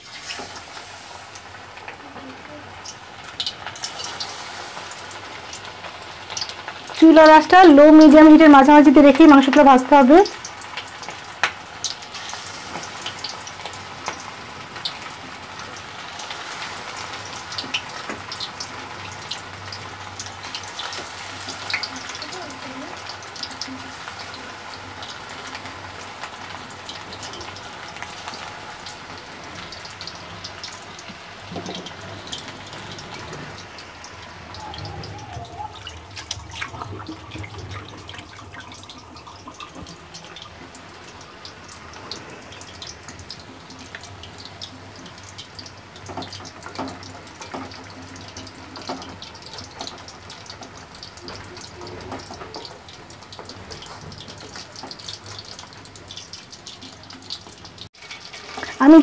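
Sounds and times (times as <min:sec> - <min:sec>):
chicken deep-frying in oil: 0:00.0 - 0:59.0.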